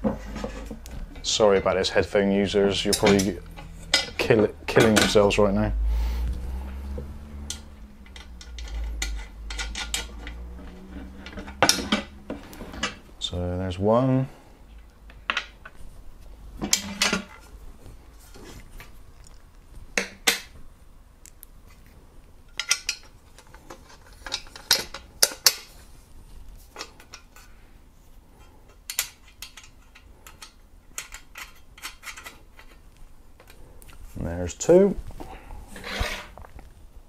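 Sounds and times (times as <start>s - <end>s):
metal plates and screws clinking: 2.8s - 5.2s, 7.5s - 13.0s, 16.6s - 17.4s.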